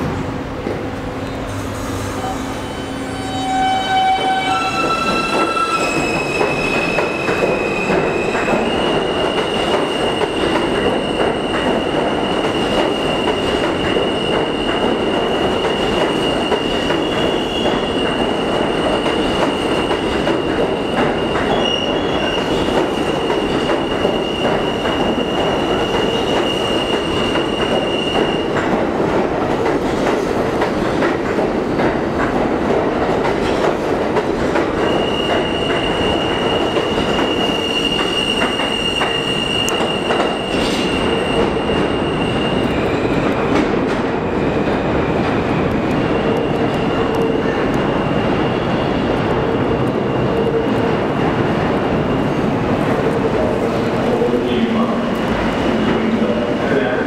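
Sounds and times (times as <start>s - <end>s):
subway train rumbling: 0.0s - 57.0s
high-pitched wheel squeal: 2.2s - 9.0s.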